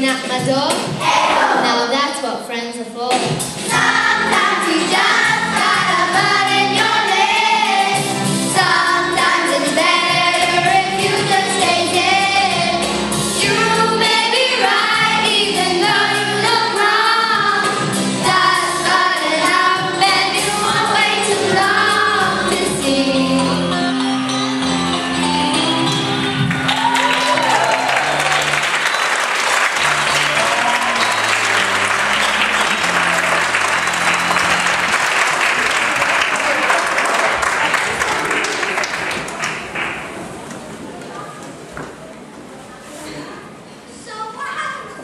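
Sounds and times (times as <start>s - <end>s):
musical accompaniment: 3.0s - 40.4s.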